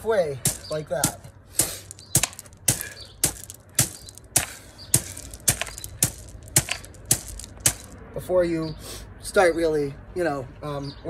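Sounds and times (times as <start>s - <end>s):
hands striking gravel: 0.4s - 8.0s.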